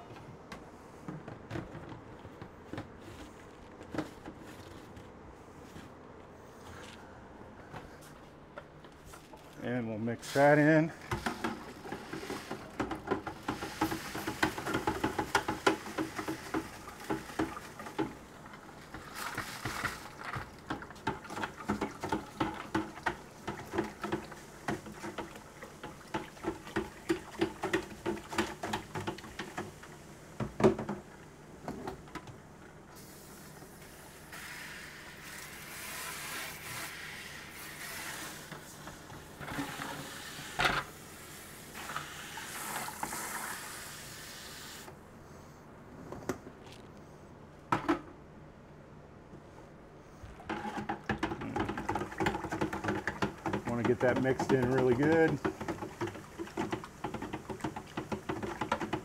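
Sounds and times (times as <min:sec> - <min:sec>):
stirrer knocking and sloshing in bucket: 0:09.0 - 0:32.4, 0:50.2 - 0:59.0
steady hiss: 0:09.6 - 0:11.4, 0:32.9 - 0:45.0.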